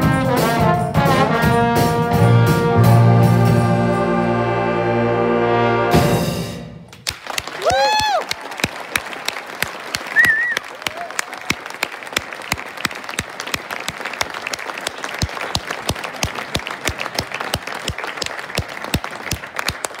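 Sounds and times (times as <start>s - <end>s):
audience applauding: 6.9s - 20.0s
high wavering whistle: 10.2s - 10.6s.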